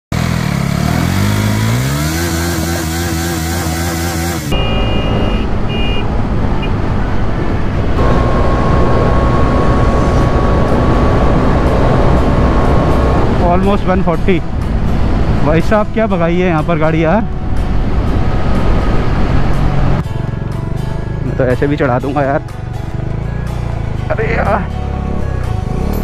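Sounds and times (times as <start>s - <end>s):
motorcycle engine accelerating: 0.1s - 15.6s, 22.6s - 26.0s
wind and road noise: 0.2s - 26.0s.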